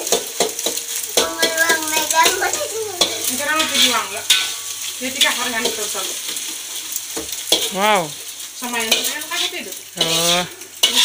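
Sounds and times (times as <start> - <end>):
food sizzling in a wok: 0.0 - 11.0
utensil scraping a pan: 0.1 - 6.6, 8.8 - 11.0
person speaking: 1.2 - 3.6, 7.7 - 8.2.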